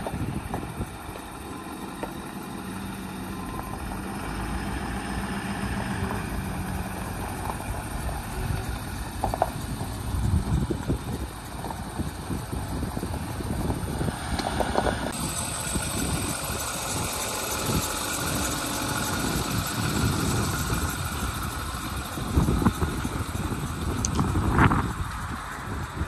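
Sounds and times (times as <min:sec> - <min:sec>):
pickup engine idling: 0:00.0 - 0:26.0.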